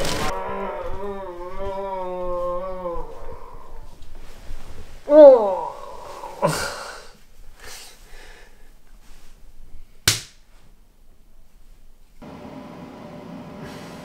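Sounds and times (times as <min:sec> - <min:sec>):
heavy breaths: 0:00.7 - 0:09.5
hand slapping belly: 0:10.0 - 0:10.4.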